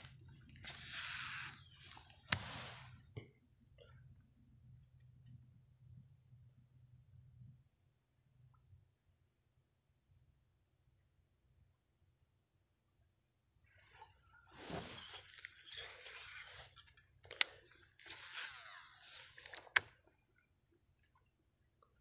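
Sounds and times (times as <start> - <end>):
high-pitched insect drone: 0.0 - 22.0
handling rustle: 14.4 - 19.8.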